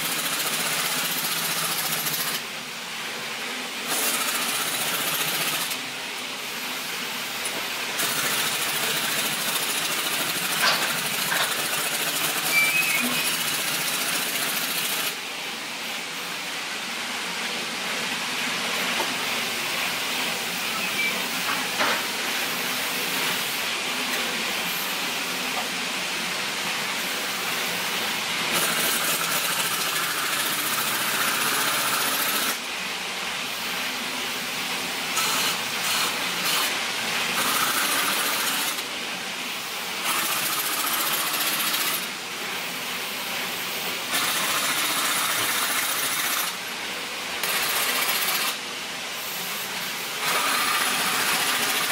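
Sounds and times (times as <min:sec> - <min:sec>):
pneumatic impact wrench rattling: 0:00.0 - 0:02.4, 0:03.8 - 0:05.8, 0:07.4 - 0:15.2, 0:28.5 - 0:32.6, 0:35.2 - 0:36.8, 0:37.4 - 0:38.9, 0:40.0 - 0:42.1, 0:44.1 - 0:46.6, 0:47.4 - 0:48.6, 0:50.2 - 0:51.9.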